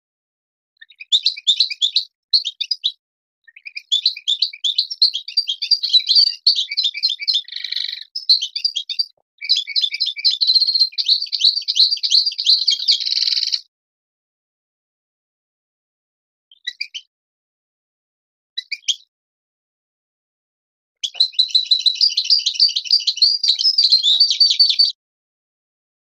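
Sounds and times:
goldfinch singing: 0.8s - 13.6s, 16.5s - 17.1s, 21.0s - 25.0s.

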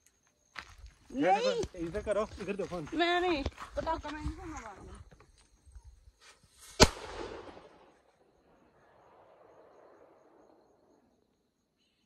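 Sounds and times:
firecracker bang with echo: 6.8s - 7.9s.

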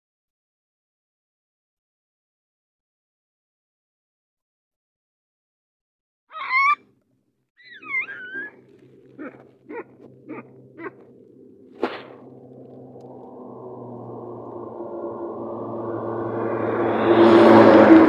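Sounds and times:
baboon calling: 6.3s - 6.8s, 7.6s - 11.1s
low steady hum: 8.0s - 18.0s.

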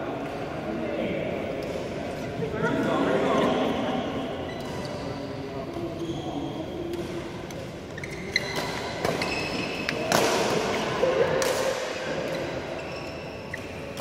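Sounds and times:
shoes squeaking on court: 4.4s - 10.9s, 12.2s - 14.0s.

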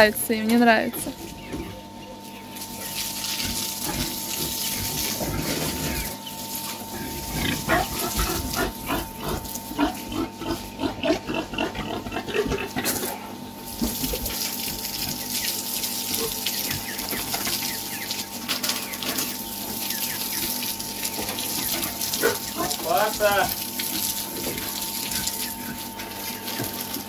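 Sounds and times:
hose spraying water: 2.5s - 10.0s, 12.8s - 27.0s
pigs grunting: 3.1s - 13.3s, 16.1s - 17.7s, 20.3s - 26.7s.

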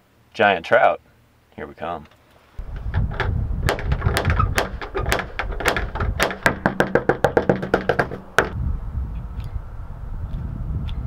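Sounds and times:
fist knocking on door: 2.7s - 8.6s
metal door knocker knocking: 2.7s - 8.6s.

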